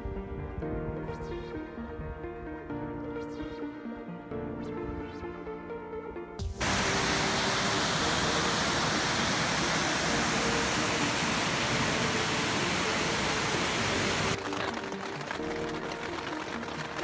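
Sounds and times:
creek water rushing over waterfall: 6.6s - 14.5s.

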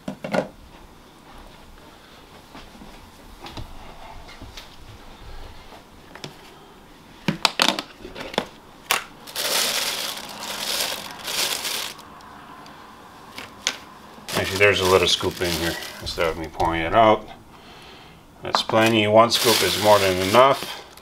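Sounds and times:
plastic bag crinkling: 8.9s - 12.1s, 14.3s - 17.0s, 18.6s - 21.0s.

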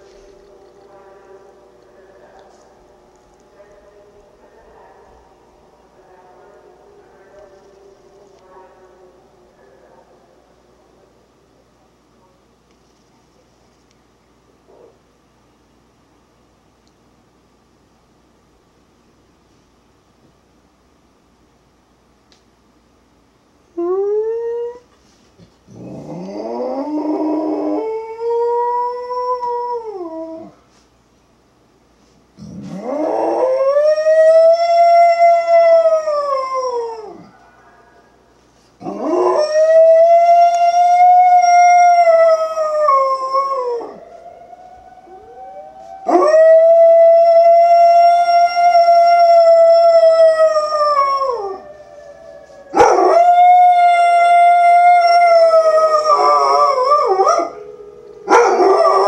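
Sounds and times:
dog howling: 25.7s - 30.6s, 38.8s - 59.0s.

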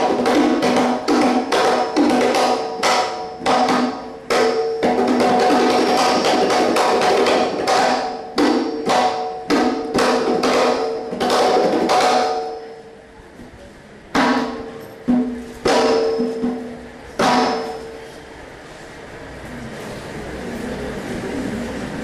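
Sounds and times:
ringing drum strokes: 14.5s - 18.3s.

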